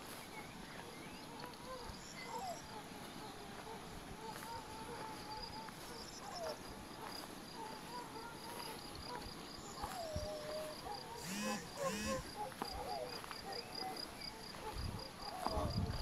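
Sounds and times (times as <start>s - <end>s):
crickets chirping: 0.6s - 16.0s
faint wavering calls: 9.6s - 15.5s.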